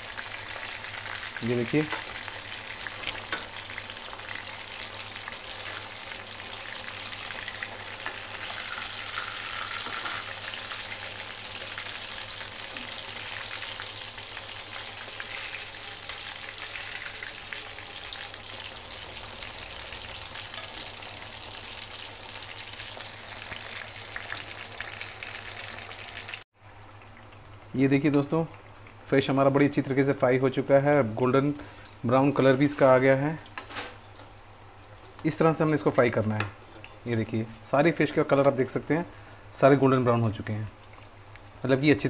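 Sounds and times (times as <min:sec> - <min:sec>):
fish deep-frying in hot oil: 0:00.0 - 0:30.7.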